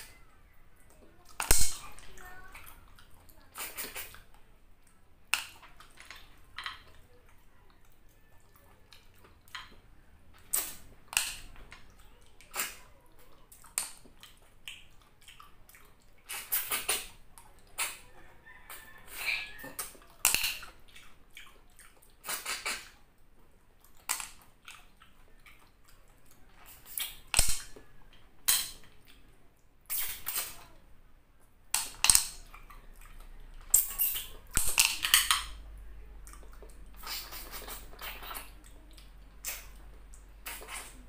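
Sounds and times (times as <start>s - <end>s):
wet sucking and slurping: 16.2s - 18.0s, 22.0s - 23.0s, 29.9s - 30.6s, 33.7s - 34.6s, 36.5s - 38.6s, 40.4s - 41.0s.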